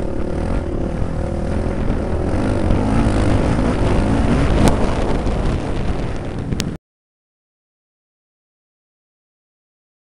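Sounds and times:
dirt bike motor: 0:00.0 - 0:06.8
wind buffeting microphone: 0:00.0 - 0:06.8.

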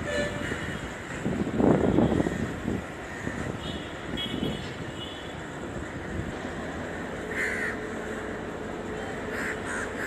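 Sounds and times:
distant trains and traffic rumble: 0:00.0 - 0:10.0
crows cawing: 0:02.1 - 0:03.6, 0:07.3 - 0:08.3, 0:09.3 - 0:10.0.

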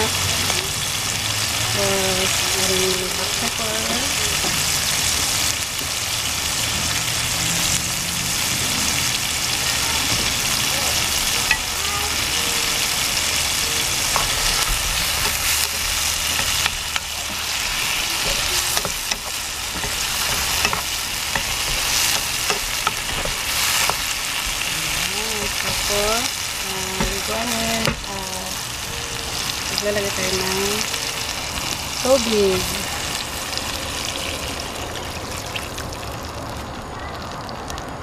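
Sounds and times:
vegetables sizzling in oil: 0:00.0 - 0:37.3
spatula clicking against pan: 0:18.2 - 0:24.0.

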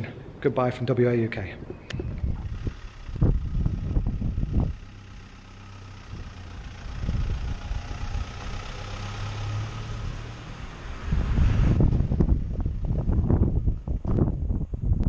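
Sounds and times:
diesel engine driving past: 0:01.4 - 0:14.7
low thumps: 0:01.6 - 0:04.9, 0:11.0 - 0:15.0.

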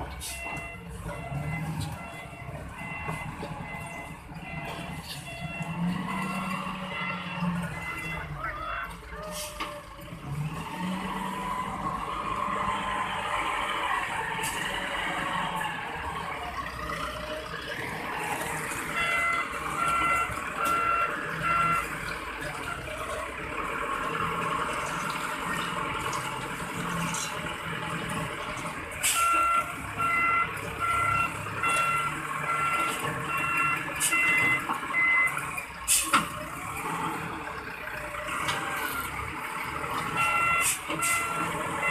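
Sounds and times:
diesel engine running: 0:00.0 - 0:41.9
reversing alarm beeping: 0:00.2 - 0:09.0, 0:18.8 - 0:23.0, 0:29.1 - 0:35.5, 0:40.0 - 0:41.9.

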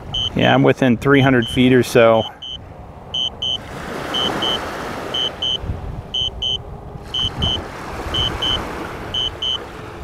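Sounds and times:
high double beep: 0:00.0 - 0:00.4, 0:01.4 - 0:01.6, 0:02.2 - 0:02.6, 0:03.2 - 0:04.6, 0:05.2 - 0:05.6, 0:06.2 - 0:06.6, 0:07.2 - 0:07.6, 0:08.2 - 0:08.6, 0:09.2 - 0:09.6
wind rumble on microphone: 0:00.0 - 0:10.0.

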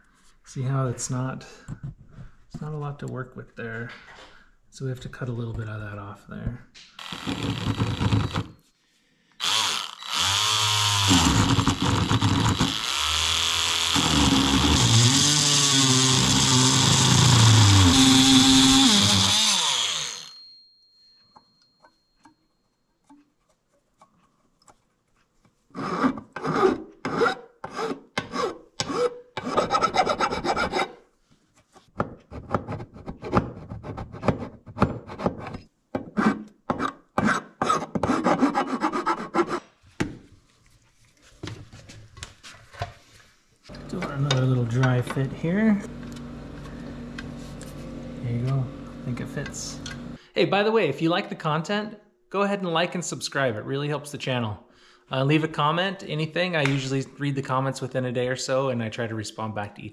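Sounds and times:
rotary tool cutting metal: 0:07.0 - 0:08.6, 0:09.4 - 0:20.5
hand file rasping: 0:09.4 - 0:20.3, 0:25.7 - 0:31.0, 0:32.3 - 0:39.8.

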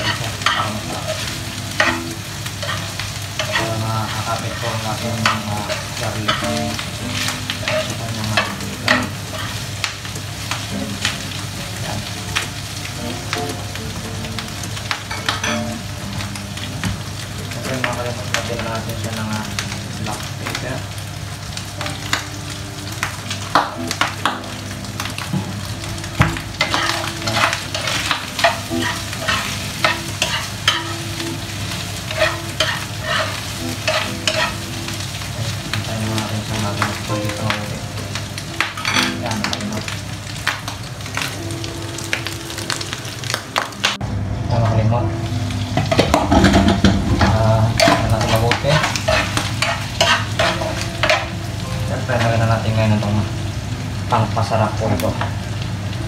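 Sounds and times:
meat sizzling in a frying pan: 0:00.0 - 0:56.0
spatula scraping a pan: 0:26.6 - 0:31.0, 0:32.1 - 0:34.6, 0:47.8 - 0:51.2.

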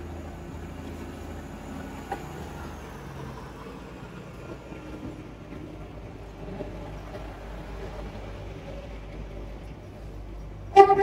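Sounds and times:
train engine drone: 0:00.0 - 0:11.0.

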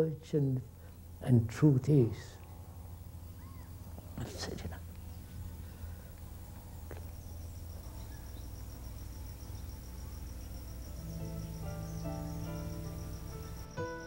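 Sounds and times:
cricket trilling: 0:00.0 - 0:14.0
steady low hum: 0:00.0 - 0:14.0
soft music with held notes: 0:10.4 - 0:14.0.

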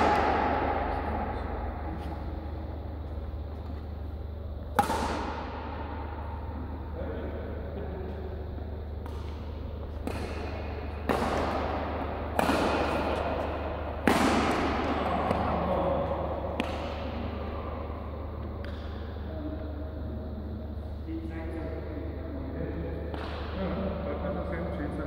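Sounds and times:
racket hitting shuttlecock: 0:00.0 - 0:02.2, 0:04.6 - 0:06.6, 0:09.0 - 0:19.1, 0:23.1 - 0:23.6
steady low hum: 0:00.0 - 0:25.0.

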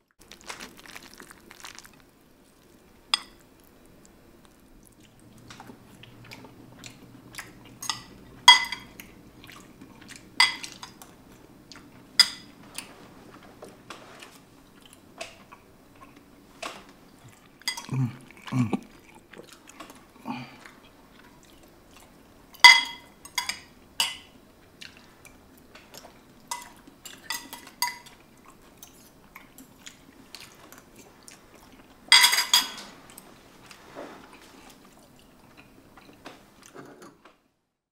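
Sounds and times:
knife and fork clinking on bowl: 0:07.8 - 0:09.0, 0:10.4 - 0:11.0, 0:22.6 - 0:24.2, 0:32.1 - 0:32.9.

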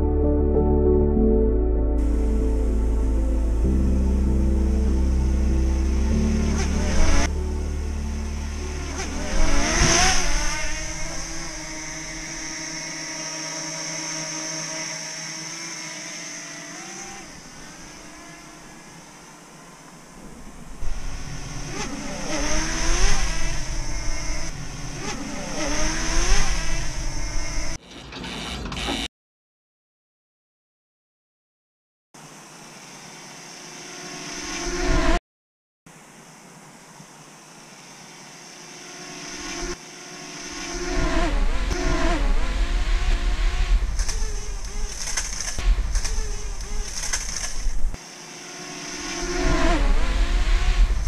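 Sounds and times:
low rumble: 0:00.0 - 0:11.6
drone propellers whining: 0:03.6 - 0:29.0, 0:37.5 - 0:51.0
wind rumbling on microphone: 0:41.0 - 0:48.0, 0:49.3 - 0:51.0.

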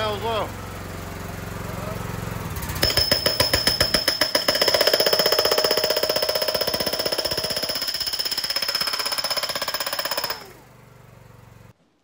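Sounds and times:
hydraulic breaker hammering wood: 0:02.8 - 0:10.6.

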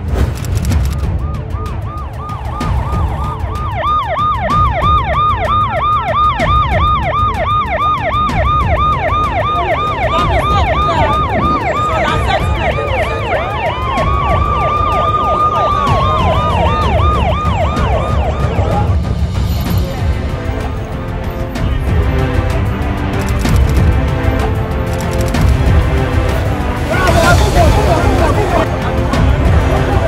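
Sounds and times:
siren wailing: 0:01.1 - 0:19.4
siren fast yelp: 0:01.4 - 0:19.2.

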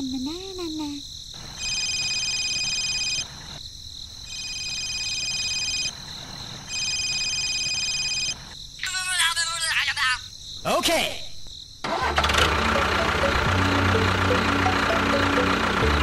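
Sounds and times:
telephone ringing electronic trill: 0:01.6 - 0:03.3, 0:04.3 - 0:05.9, 0:06.7 - 0:08.4.

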